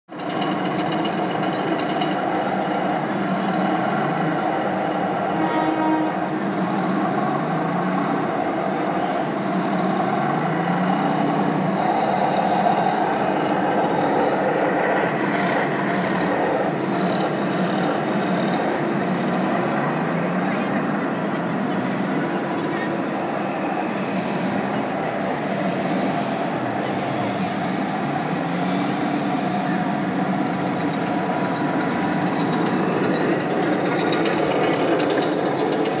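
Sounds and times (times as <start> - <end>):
model tank tracks running: 0.1 - 36.0
tracks clattering: 30.2 - 36.0.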